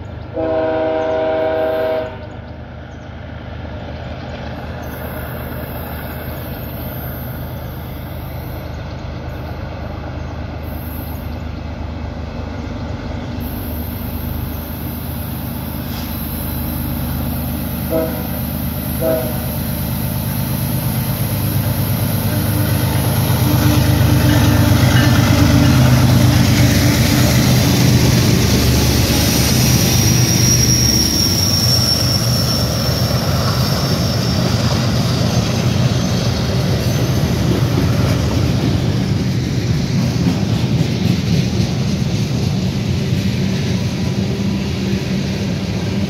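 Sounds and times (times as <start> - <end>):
diesel locomotive engine drone: 0.0 - 46.0
train wheels on rails: 0.0 - 46.0
high wheel squeal: 13.4 - 38.2.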